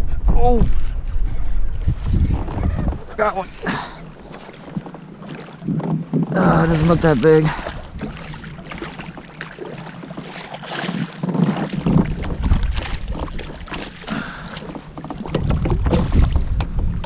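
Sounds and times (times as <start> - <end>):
low rumble: 0.0 - 4.2
fish splashing in water: 3.4 - 5.8, 6.5 - 16.5.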